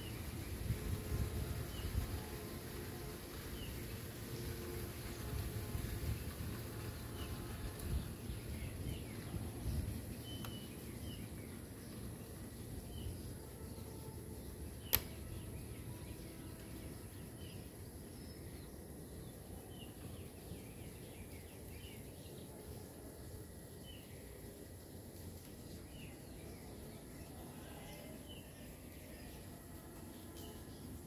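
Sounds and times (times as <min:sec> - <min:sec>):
steady high hiss: 0:00.0 - 0:31.0
sharp click: 0:14.8 - 0:15.2.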